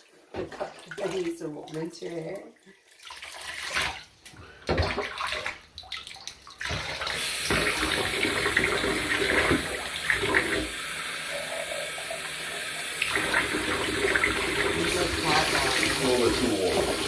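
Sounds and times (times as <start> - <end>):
bathwater sloshing and splashing: 0.0 - 17.0
bathtub tap running: 3.5 - 17.0.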